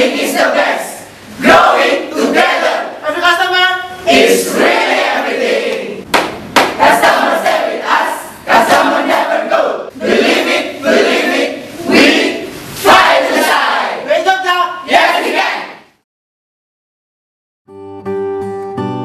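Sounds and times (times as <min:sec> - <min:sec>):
group shouting a team cheer: 0:12.9 - 0:14.1, 0:14.9 - 0:15.8.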